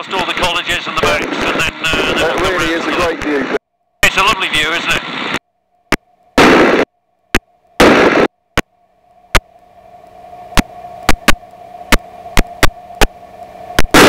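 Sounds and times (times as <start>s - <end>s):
wind and engine rush: 0.0s - 5.4s
faint steady hum: 0.0s - 14.0s.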